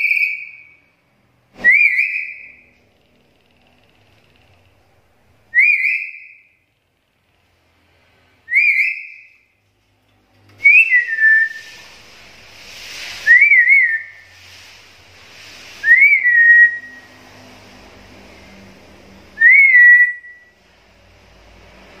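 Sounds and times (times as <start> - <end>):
parrot whistled calls: 0.0 - 0.8, 1.6 - 2.6, 5.5 - 6.6, 8.5 - 9.4, 13.2 - 14.2, 15.8 - 17.2, 19.4 - 20.5
faint hiss: 9.5 - 19.6.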